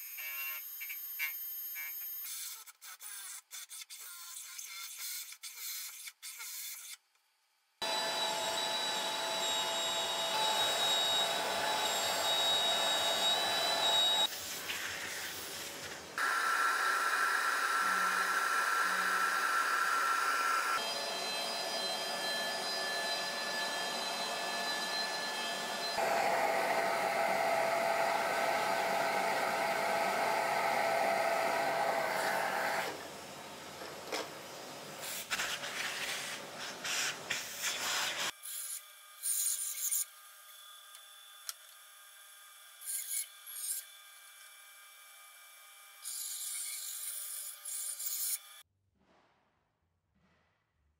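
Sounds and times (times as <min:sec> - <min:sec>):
router whining hum: 0:07.8 - 0:14.3, 0:16.2 - 0:34.2.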